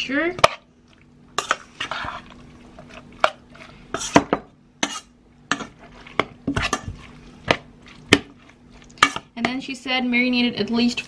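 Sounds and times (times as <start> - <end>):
metal spoon scraping a pot: 1.4 - 9.3.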